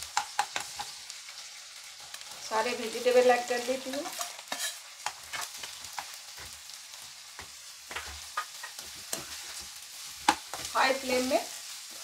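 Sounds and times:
vegetables sizzling in hot oil: 0.0 - 12.0
spatula scraping a pan: 4.0 - 12.0.

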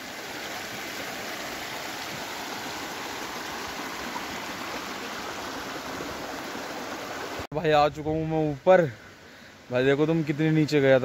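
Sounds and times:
stream flowing over rocks: 0.0 - 7.5.

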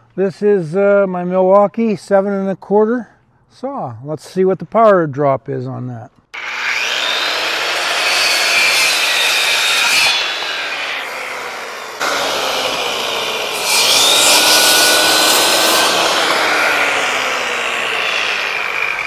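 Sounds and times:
circular saw cutting wood: 6.4 - 19.0.

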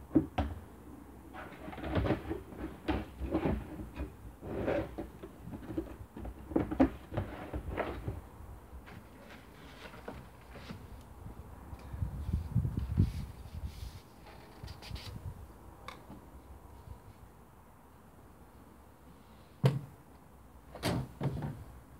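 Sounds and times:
plastic clunks and scraping: 1.4 - 11.0, 20.7 - 21.7.

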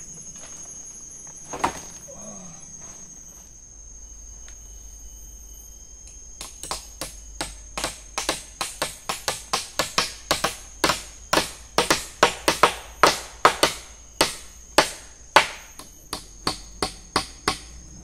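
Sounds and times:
tool knocking on wood: 6.4 - 17.7.

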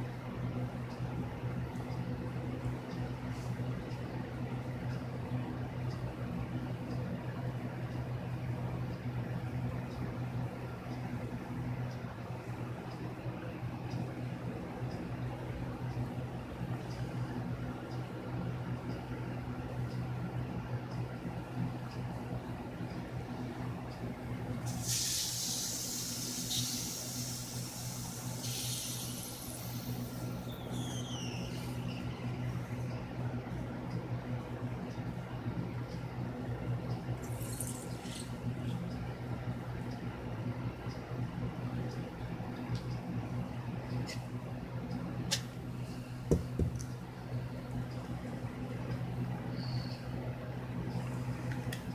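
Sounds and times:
low machine hum: 0.0 - 51.9
steady high hiss: 24.6 - 32.8.

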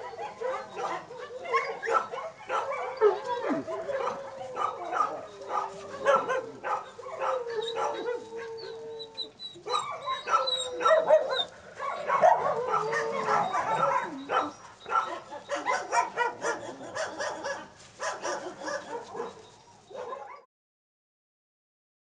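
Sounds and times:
wolves howling: 0.0 - 17.5
wolves yapping: 0.0 - 20.4
wolves yipping and whining: 0.0 - 20.4.

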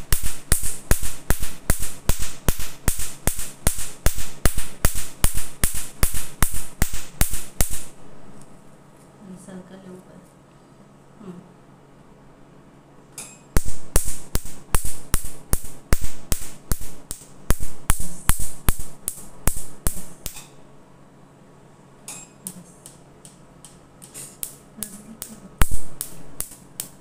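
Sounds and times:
laser firing sharp snaps: 0.1 - 7.9, 13.6 - 20.5.

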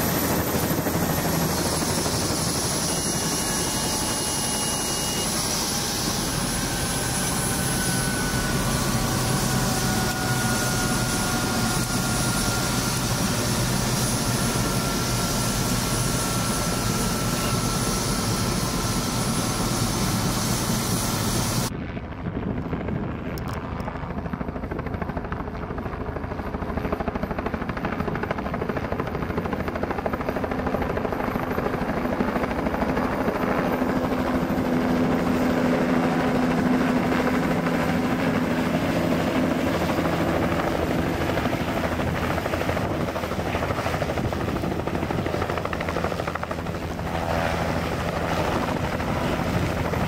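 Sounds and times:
helicopter rotor and turbine: 0.0 - 50.0.

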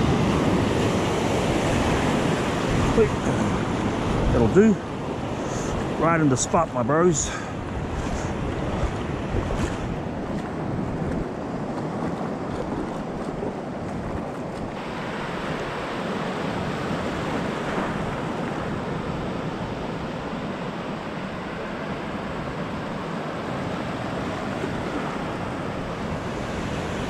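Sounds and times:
surf breaking in shallows: 0.0 - 27.0
wind on microphone: 7.3 - 27.0.

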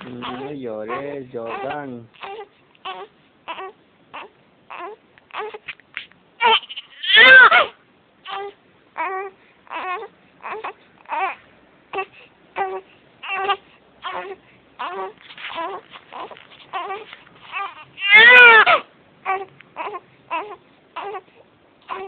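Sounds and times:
young child crying: 6.4 - 7.7.

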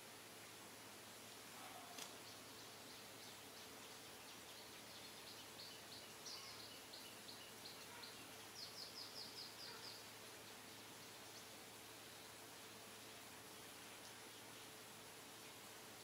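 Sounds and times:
quiet steady hiss: 0.0 - 16.0
faint bird chirps: 1.6 - 12.4.

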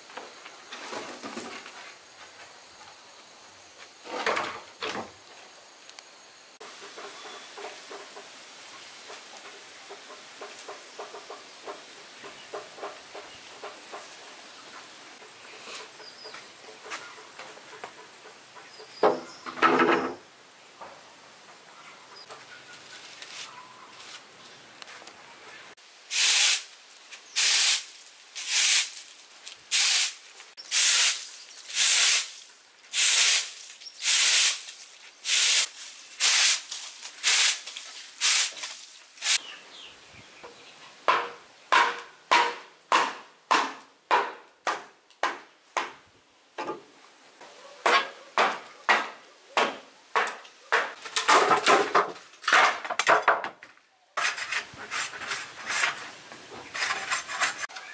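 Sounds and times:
hand tool scraping strokes: 26.1 - 39.4, 54.2 - 57.9.

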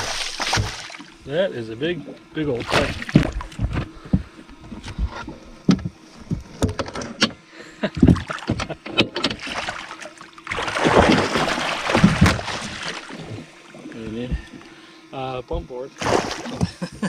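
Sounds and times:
fish splashing in a net: 0.0 - 1.1, 9.4 - 13.5, 16.0 - 16.7
net knocking against hull: 10.6 - 13.4.

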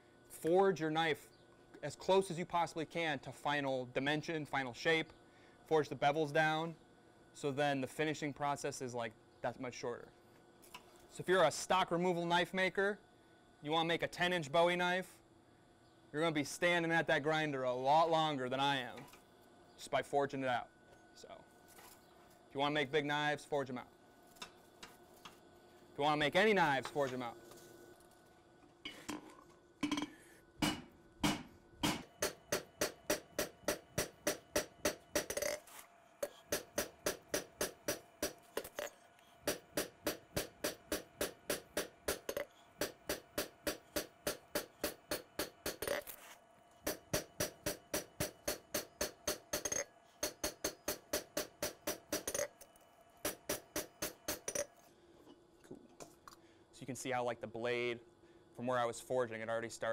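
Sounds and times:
hammer striking hot steel: 29.8 - 35.6, 36.2 - 38.9, 39.5 - 46.0, 46.9 - 52.5, 53.2 - 54.7
anvil ringing: 46.9 - 52.5.

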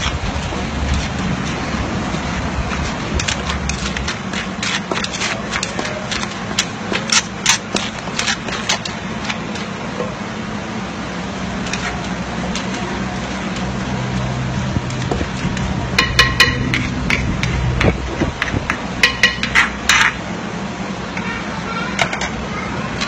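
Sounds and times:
low background rumble: 0.0 - 23.0
food preparation knocks and clicks: 14.9 - 20.2.

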